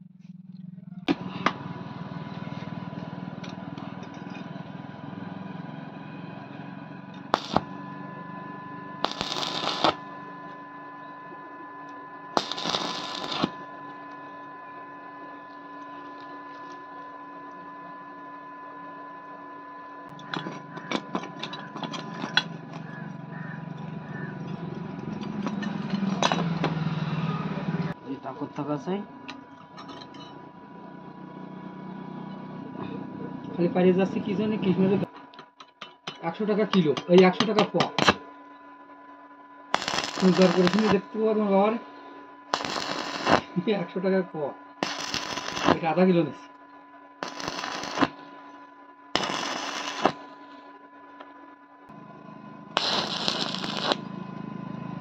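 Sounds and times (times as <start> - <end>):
welder hum with whine: 0.0 - 55.0
welding arc crackle: 7.3 - 7.8, 9.0 - 10.0, 12.4 - 13.6, 39.7 - 41.1, 42.5 - 43.6, 44.8 - 46.0, 47.2 - 48.4, 49.2 - 50.7, 52.8 - 54.1.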